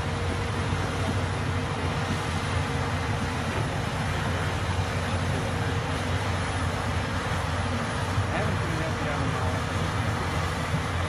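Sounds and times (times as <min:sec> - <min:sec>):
bulldozer diesel engines droning: 0:00.0 - 0:11.0
bulldozer pushing dirt: 0:00.0 - 0:11.0.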